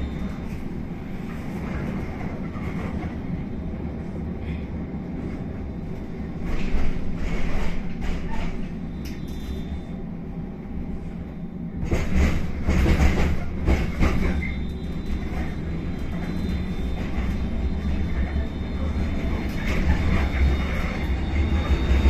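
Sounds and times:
tram rumble: 0.0 - 22.0.

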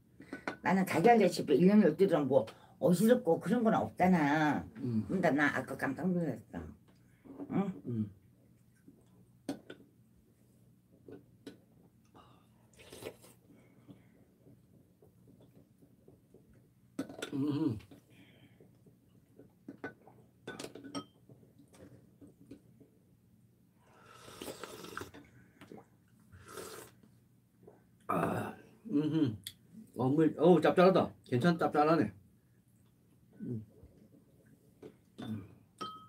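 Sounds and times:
slurp: 12.7 - 13.4, 24.1 - 27.0
spoons clinking ceramic bowls: 35.2 - 36.0.

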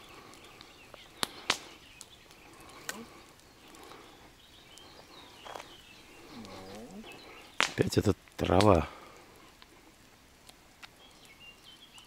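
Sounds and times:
faint bird calls: 0.0 - 7.7.

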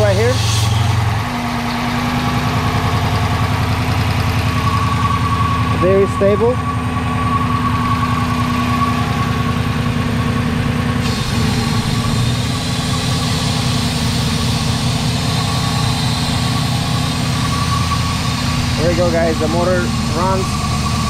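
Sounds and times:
car engine idling: 0.0 - 21.0
air leak hiss: 11.0 - 20.7.

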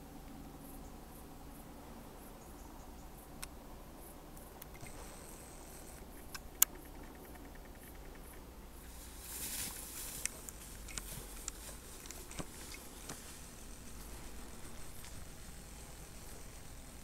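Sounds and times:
rustling of tall grass: 4.7 - 7.2, 8.5 - 17.0.

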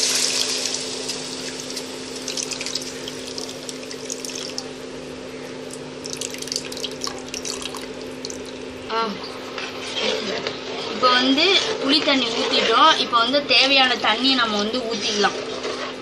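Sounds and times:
liquid sizzling in hot pan: 0.0 - 4.6
crackling and dripping: 0.4 - 4.8, 5.6 - 8.8.

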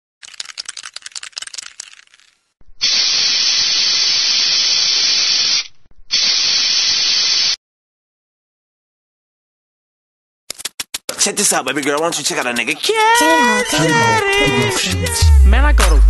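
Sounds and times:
spray can hissing: 0.2 - 7.6
spray can rattling when shaken: 0.2 - 7.6, 10.5 - 14.7.

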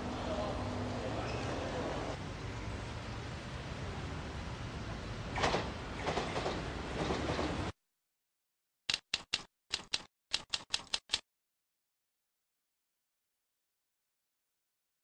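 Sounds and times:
busy street ambience: 0.0 - 7.6
typewriter key clicks: 8.9 - 11.2.

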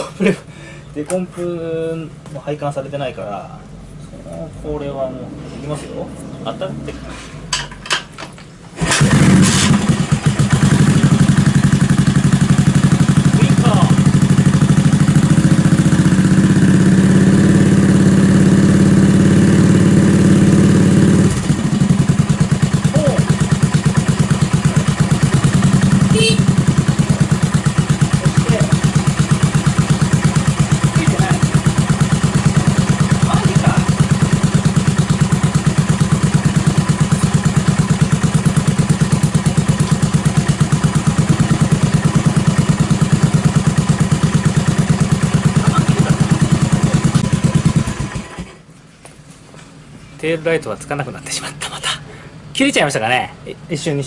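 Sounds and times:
motorcycle engine revving and idling: 8.7 - 48.7.

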